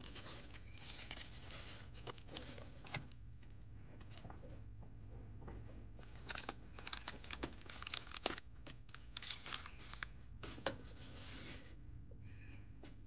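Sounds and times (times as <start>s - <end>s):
plastic toy and paper crinkling: 0.0s - 3.1s, 6.0s - 10.7s.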